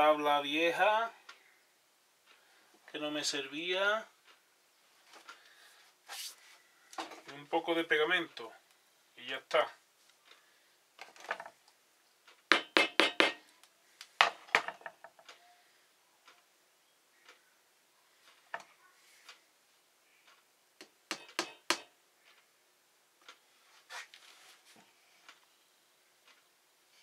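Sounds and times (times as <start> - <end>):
wooden knocks and taps: 14.2 - 15.3.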